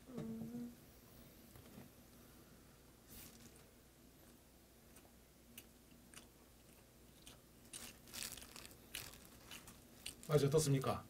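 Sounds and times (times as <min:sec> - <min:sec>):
faint chewing with wet smacks: 0:04.9 - 0:10.4.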